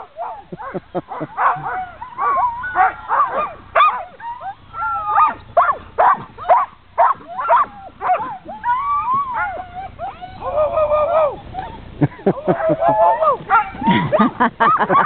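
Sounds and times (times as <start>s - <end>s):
dogs barking and yelping: 0.0s - 15.0s
dog whining: 6.4s - 11.9s.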